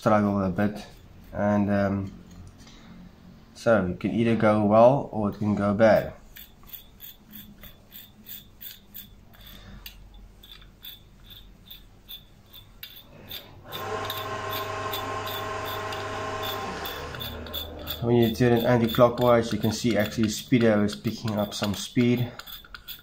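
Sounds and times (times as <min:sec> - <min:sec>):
mechanism whirring hum: 0:00.0 - 0:23.0
small rasping ticks: 0:16.8 - 0:23.0.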